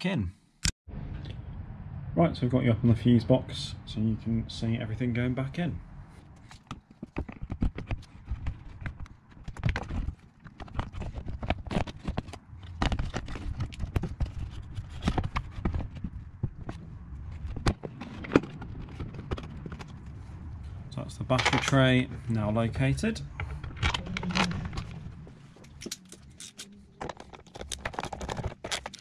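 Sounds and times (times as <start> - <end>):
hard plastic knocking and clattering: 6.6 - 20.0, 27.0 - 29.0.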